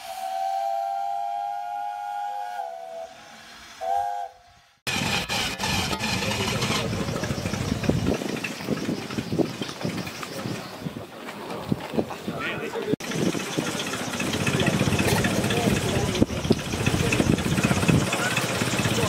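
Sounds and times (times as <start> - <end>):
steam whistle blast: 0.0 - 4.8
propeller plane engine running: 4.9 - 10.7, 13.0 - 19.0.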